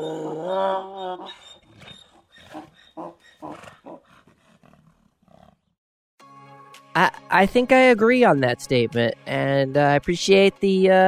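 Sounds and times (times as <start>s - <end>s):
animal-like vocal call: 0.0s - 5.5s.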